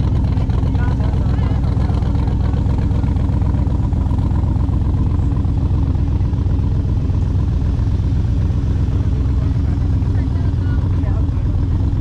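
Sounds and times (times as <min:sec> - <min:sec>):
engine idling: 0:00.0 - 0:12.0.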